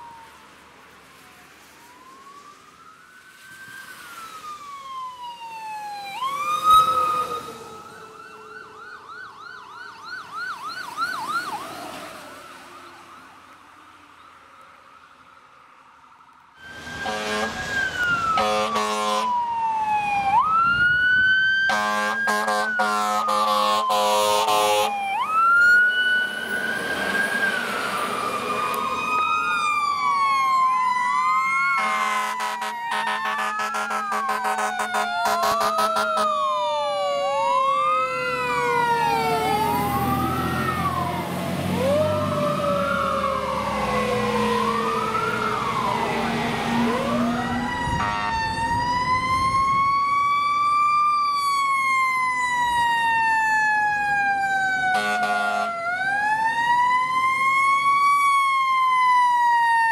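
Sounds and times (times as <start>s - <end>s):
fire truck siren wailing: 0.0s - 59.9s
air horn blasts: 16.9s - 17.7s, 18.3s - 19.3s, 21.7s - 24.9s, 31.8s - 36.4s, 47.9s - 48.5s, 54.9s - 55.8s.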